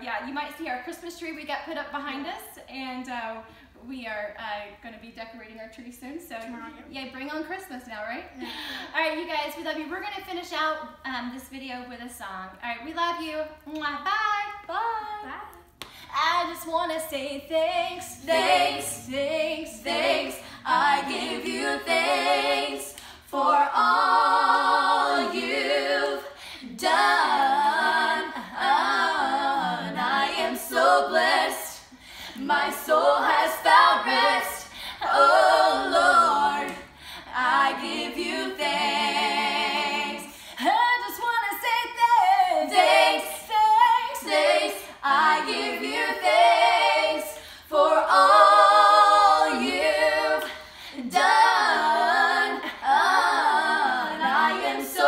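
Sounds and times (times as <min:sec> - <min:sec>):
woman and girls singing: 0:13.1 - 0:55.0.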